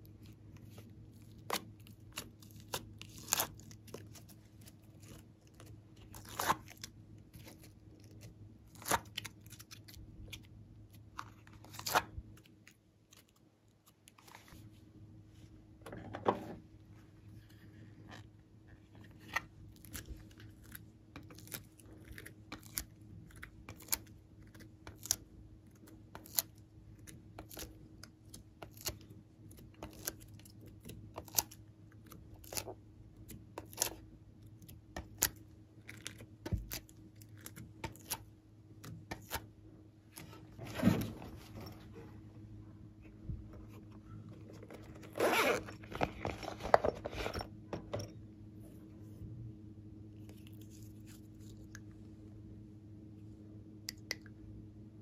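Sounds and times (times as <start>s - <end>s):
zipper opening: 44.9s - 47.5s.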